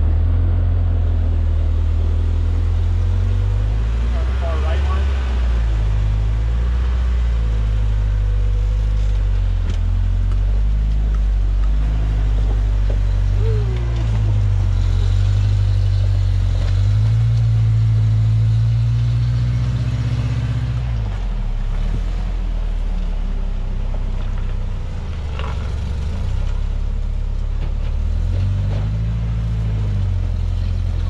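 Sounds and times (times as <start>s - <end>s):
truck engine revving under load: 0.0s - 23.6s.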